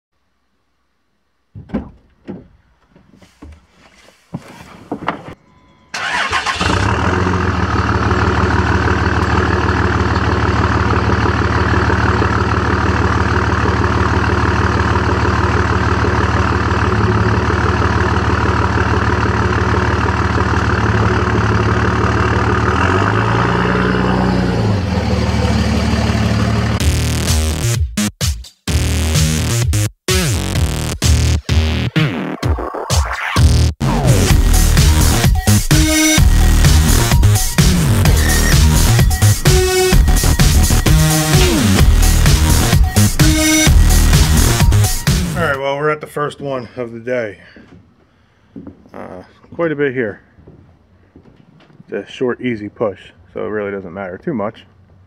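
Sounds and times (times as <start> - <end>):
engine clicks and knocks: 1.5 - 3.6, 6.0 - 23.5
pickup engine idling: 5.9 - 26.8
engine revving: 6.0 - 27.6, 33.6 - 45.6.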